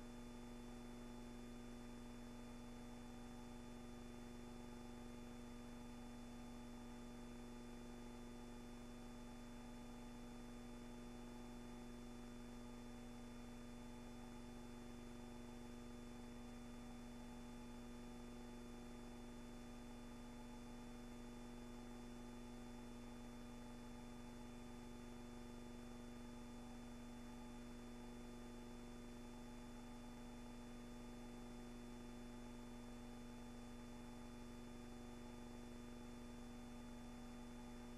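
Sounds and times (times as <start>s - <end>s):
electrical hum with hiss: 0.0s - 37.9s.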